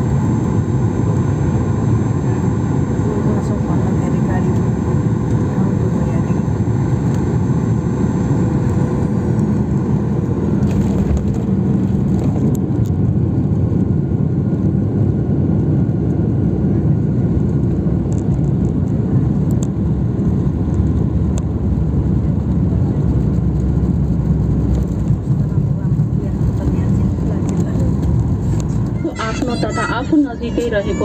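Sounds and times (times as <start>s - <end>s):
jet engines and wheels rumbling: 0.0s - 31.0s
faint rattles and clicks: 26.4s - 29.0s.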